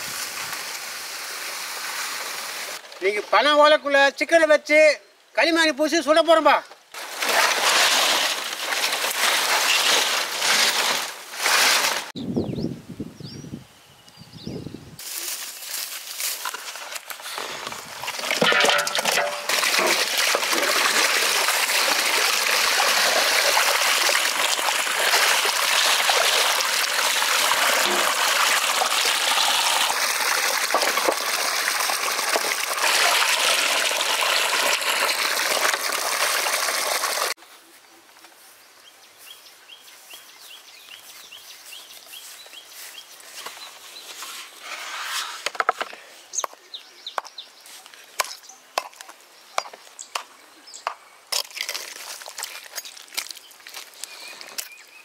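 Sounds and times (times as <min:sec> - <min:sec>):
running water rushing: 0:00.0 - 0:02.8, 0:17.4 - 0:37.4.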